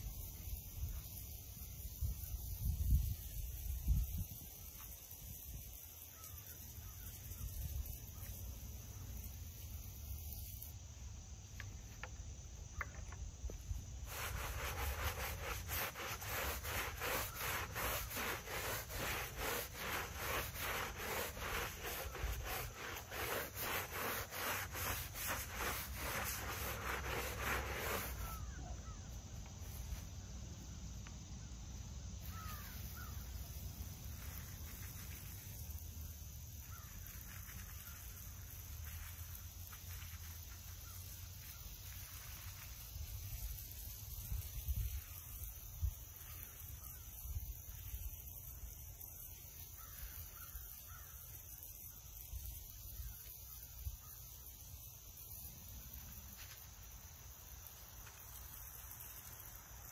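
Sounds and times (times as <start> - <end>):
faint bird chirps: 0.0 - 10.7, 28.1 - 42.6, 44.7 - 54.8
stiff brush scrubbing stone: 14.0 - 28.6.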